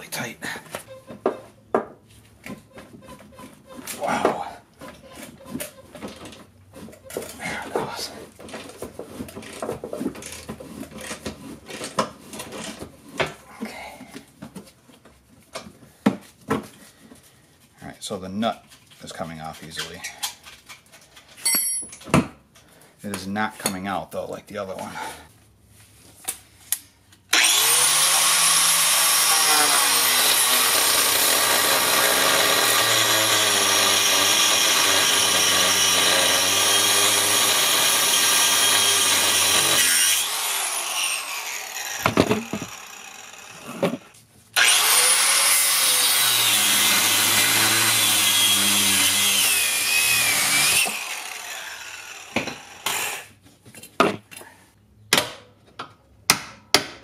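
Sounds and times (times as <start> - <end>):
angle grinder cutting metal: 27.3 - 53.4.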